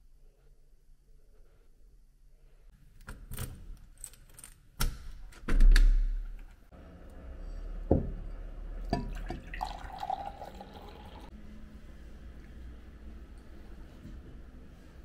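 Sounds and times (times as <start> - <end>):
key turning in lock: 3.0 - 5.7
water pouring into glass: 8.8 - 11.3.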